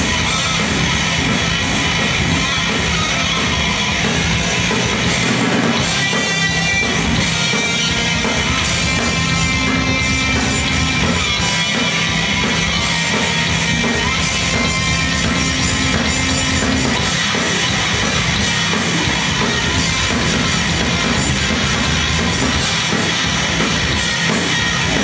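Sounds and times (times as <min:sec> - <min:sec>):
distorted electric guitars: 0:00.0 - 0:25.0
rapid drumming: 0:00.0 - 0:25.0.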